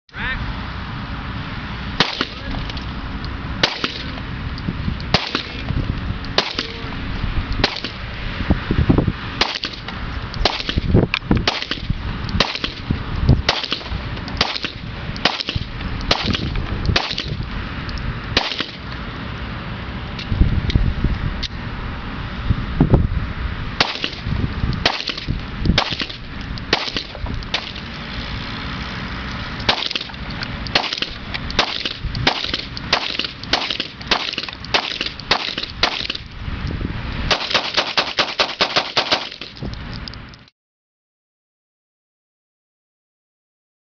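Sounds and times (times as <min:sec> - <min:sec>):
pistol shots: 0:02.0 - 0:02.4, 0:03.6 - 0:04.1, 0:05.1 - 0:05.6, 0:06.4 - 0:06.8, 0:07.6 - 0:08.0, 0:09.4 - 0:09.8, 0:10.4 - 0:12.8, 0:13.5 - 0:17.3, 0:18.4 - 0:18.8, 0:23.8 - 0:27.8, 0:29.7 - 0:36.2, 0:37.3 - 0:39.6.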